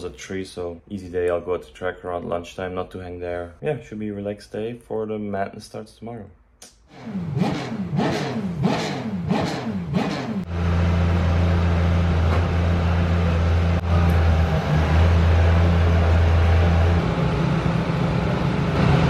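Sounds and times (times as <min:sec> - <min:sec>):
race car engine revving: 0:06.9 - 0:19.0.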